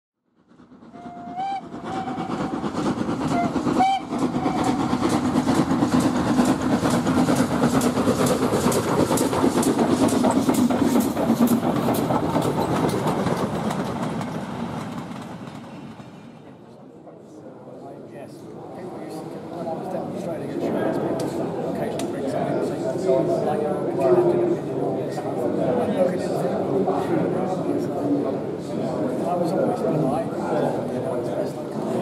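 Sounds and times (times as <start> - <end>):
train rumbling and clicking: 0.4 - 17.0, 17.9 - 32.0
steam train whistle: 0.9 - 2.6, 3.3 - 4.8.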